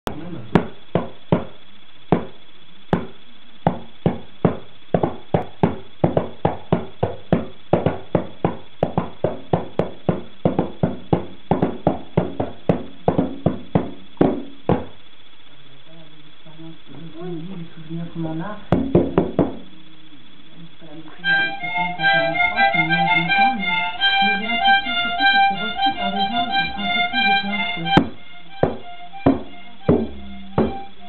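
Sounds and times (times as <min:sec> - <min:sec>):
goblet drum played by hand: 0:02.1 - 0:14.9, 0:27.8 - 0:31.0.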